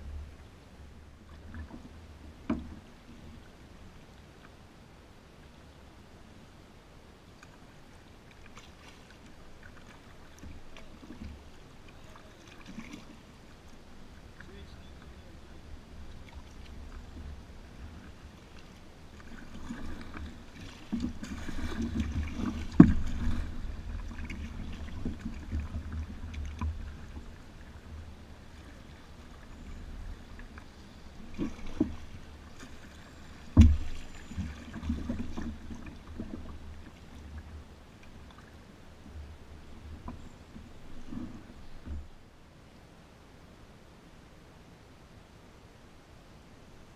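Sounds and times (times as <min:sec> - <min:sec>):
low rumble of water: 0:00.0 - 0:46.9
paddle strokes splashing: 0:07.4 - 0:42.2.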